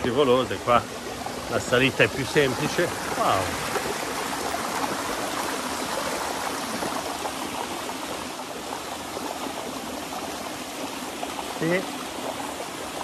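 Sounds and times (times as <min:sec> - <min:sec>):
stream cascading over rocks: 0:00.0 - 0:13.0.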